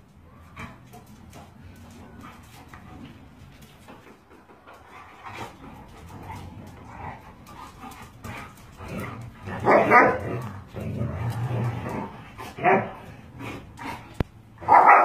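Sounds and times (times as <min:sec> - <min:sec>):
dogs scuffling: 0:00.0 - 0:15.0.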